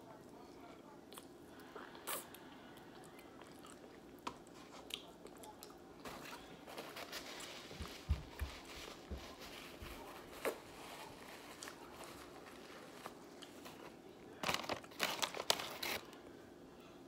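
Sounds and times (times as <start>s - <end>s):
soft chewing: 0.0s - 15.0s
paper bag crinkling: 6.0s - 16.2s.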